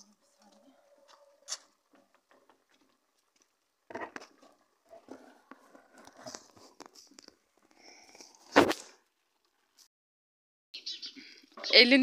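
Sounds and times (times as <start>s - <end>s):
wood fire crackling: 0.0s - 9.8s.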